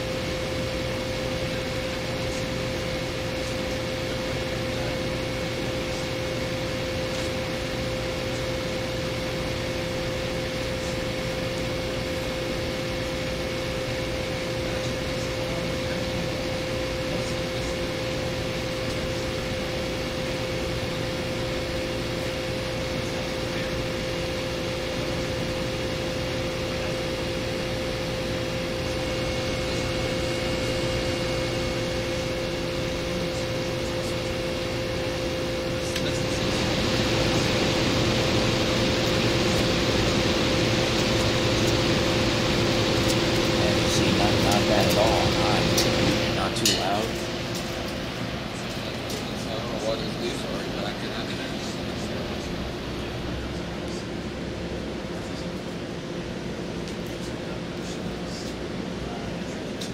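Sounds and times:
air conditioner compressor hum: 0.0 - 59.9
fan airy rush: 0.0 - 59.9.

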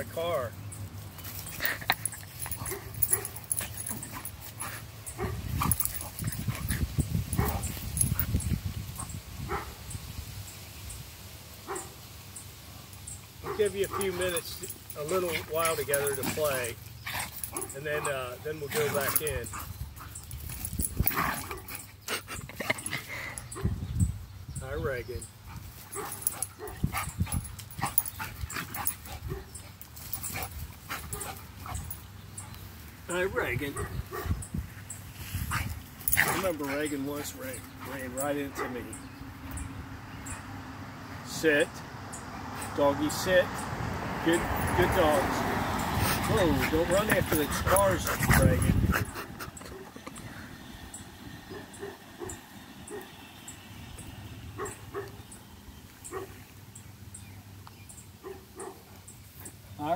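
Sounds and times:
dogs yipping and whining: 1.2 - 9.7, 13.4 - 23.8, 25.3 - 32.6, 44.4 - 53.1.

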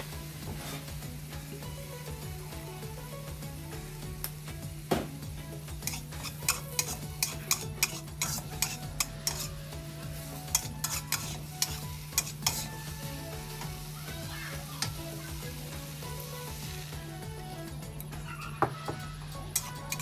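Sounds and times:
food sizzling: 0.0 - 20.0
spatula scraping a wok: 0.2 - 1.3, 5.5 - 16.6, 18.2 - 20.0.

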